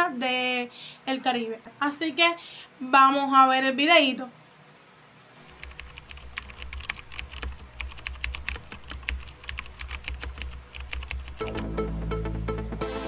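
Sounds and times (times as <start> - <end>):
low steady hum: 0.0 - 12.8
keyboard key clicks: 5.5 - 11.6
music: 11.4 - 13.0.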